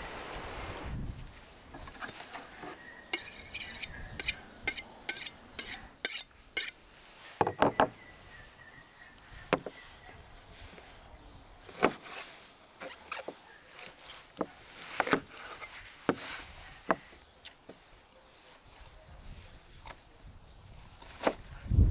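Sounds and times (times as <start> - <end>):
knife honing scrapes: 3.1 - 6.8.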